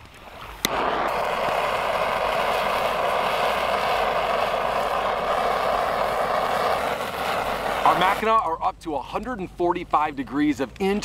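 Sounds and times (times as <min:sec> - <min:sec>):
blowtorch hissing: 0:00.6 - 0:08.4.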